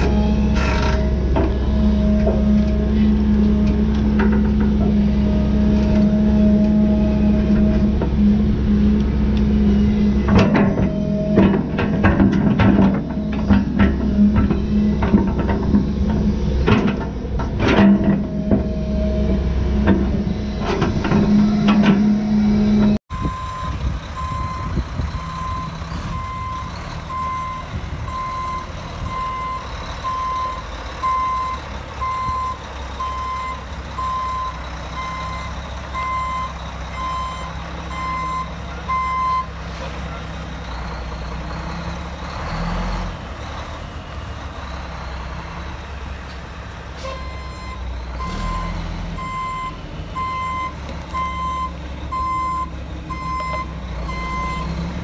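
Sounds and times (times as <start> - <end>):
excavator diesel engine: 0.0 - 55.0
truck diesel engine: 0.0 - 55.0
truck backup alarm beeping: 21.3 - 39.6, 47.0 - 55.0.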